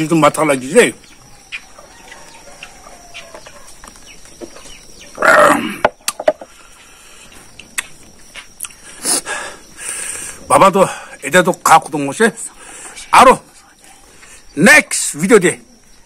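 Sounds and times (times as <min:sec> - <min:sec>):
man burping loudly: 0:05.2 - 0:06.0
mouth clicks and eating smacks: 0:07.5 - 0:08.8.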